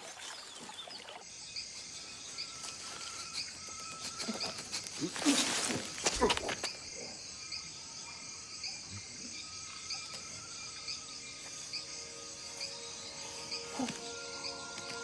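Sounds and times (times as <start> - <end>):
insects chirping: 0.0 - 15.0
soft insect trills: 0.3 - 15.0.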